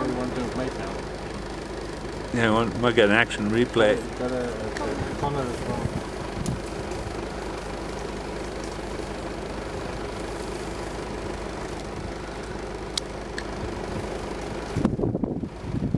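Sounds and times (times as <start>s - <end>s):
vehicle engine idling: 0.0s - 15.9s.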